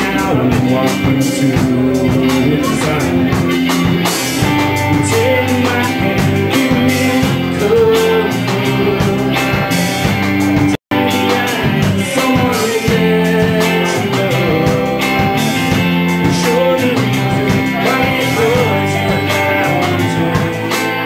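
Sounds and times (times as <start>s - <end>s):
rock band playing live: 0.0s - 21.0s.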